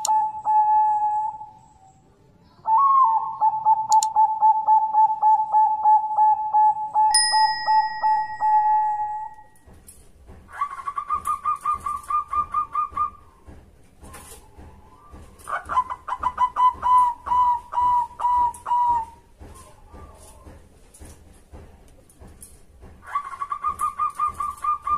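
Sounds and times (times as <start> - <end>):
dove staccato cooing: 2.8 - 7.1, 10.5 - 20.6, 23.0 - 24.9
click: 3.9 - 4.1
bell-like ding: 7.1 - 9.4.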